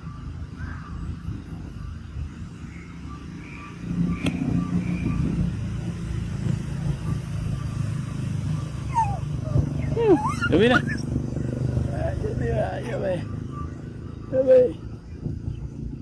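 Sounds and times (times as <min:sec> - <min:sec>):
vehicle engine rumbling: 0:00.0 - 0:16.0
sharp click: 0:04.2 - 0:04.4.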